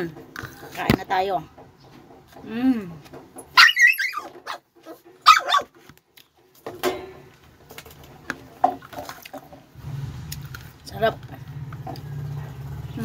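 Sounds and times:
dog barking: 3.6 - 5.7.

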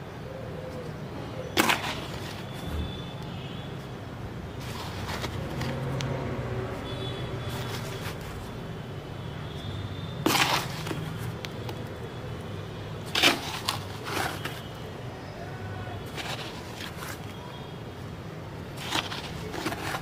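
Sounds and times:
scoop scraping soil in bucket: 1.6 - 2.5, 4.6 - 5.8, 10.2 - 11.3, 13.1 - 14.7, 16.1 - 17.3, 18.8 - 20.0.

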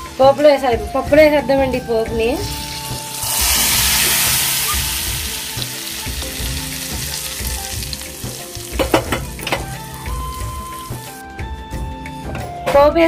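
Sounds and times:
hot oil sizzling in a pot: 2.1 - 11.2.

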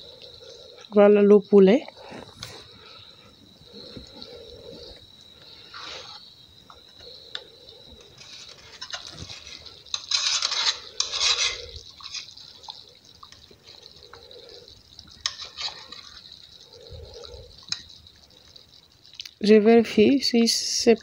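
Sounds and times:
sauce bubbling in a pot: 0.0 - 21.0
spoon scraping a pot: 8.0 - 12.5, 15.2 - 16.3.

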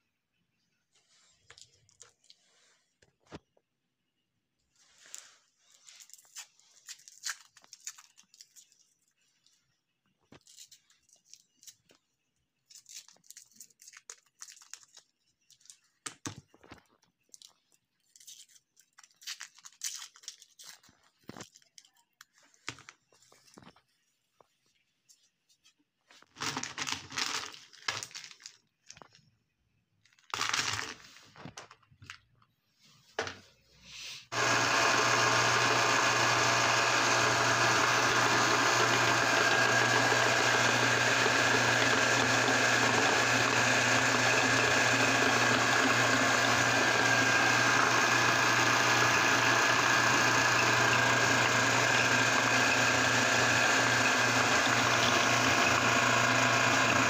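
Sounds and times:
pieces crackling and clattering: 5.9 - 9.0, 12.6 - 23.8, 26.2 - 29.4, 30.0 - 32.5
meat grinder motor humming: 34.3 - 57.0.

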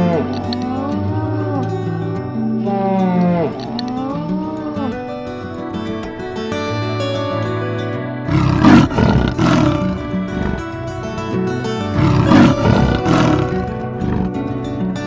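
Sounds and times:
leopard roaring: 0.0 - 5.2, 8.2 - 11.0, 11.9 - 14.6
background music with held notes: 0.0 - 15.0.

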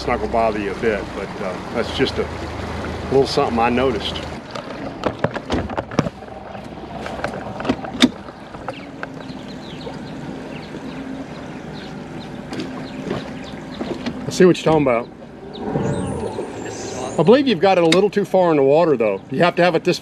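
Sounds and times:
outboard motor idling: 0.0 - 16.1.

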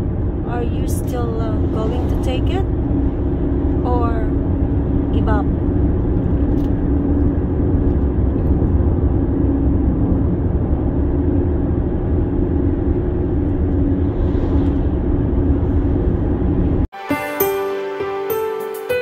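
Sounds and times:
car road and engine noise: 0.0 - 16.9.

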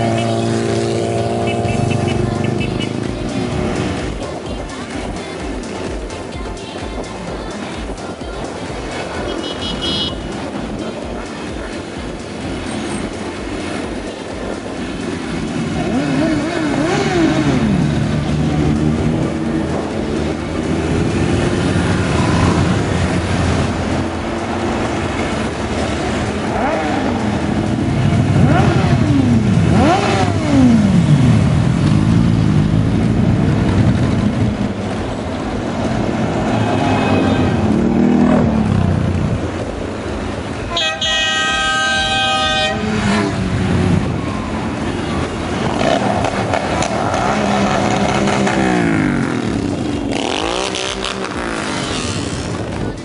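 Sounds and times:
motorcycles riding past: 0.0 - 5.7, 8.2 - 40.7, 41.5 - 53.0
horn: 40.7 - 43.3.

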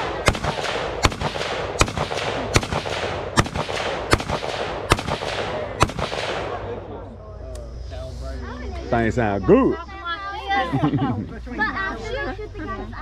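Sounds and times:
sharp gunshots: 0.0 - 6.8
fainter distant gunshots: 0.0 - 6.9.

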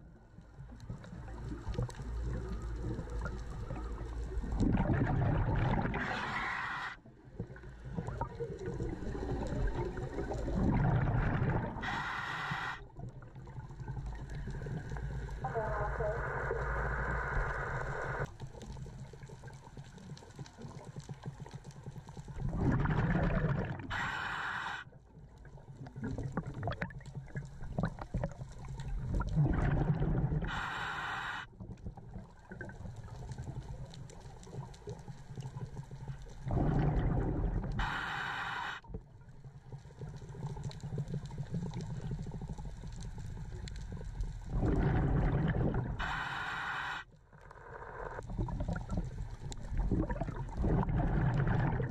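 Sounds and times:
diver exhaling bubbles: 1.4 - 13.0, 22.4 - 24.8, 27.7 - 31.4, 36.4 - 38.9, 43.4 - 47.0, 47.8 - 51.9
regulator hiss: 11.8 - 12.8, 23.9 - 24.8, 30.5 - 31.5, 37.8 - 38.8, 46.0 - 47.1.

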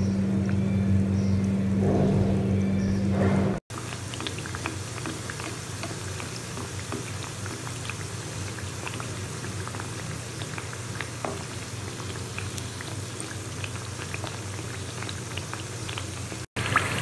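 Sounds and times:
pastries deep-frying in oil: 3.7 - 17.0.

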